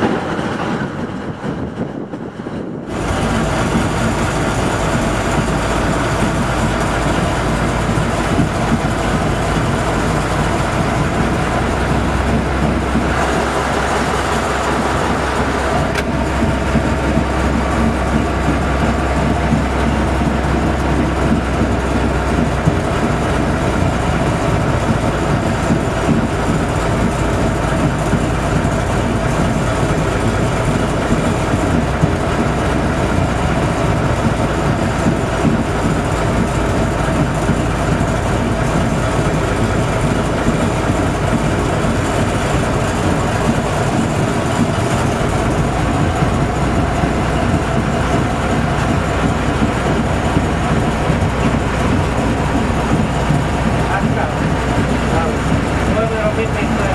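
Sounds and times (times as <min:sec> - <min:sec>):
diesel locomotive engine running: 0:00.0 - 0:56.9
wheels rolling on rails: 0:00.0 - 0:56.9.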